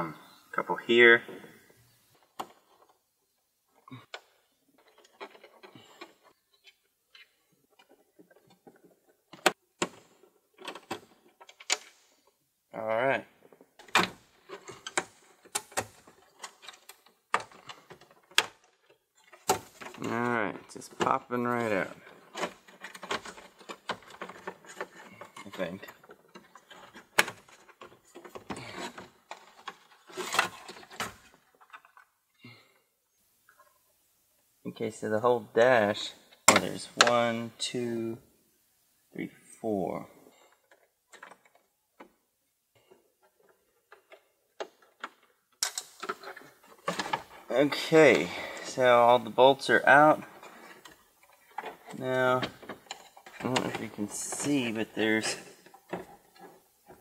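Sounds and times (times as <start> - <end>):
plastic panel scraping and rattling: 7.2 - 12.3, 13.4 - 32.2, 40.3 - 42.2, 42.8 - 57.0.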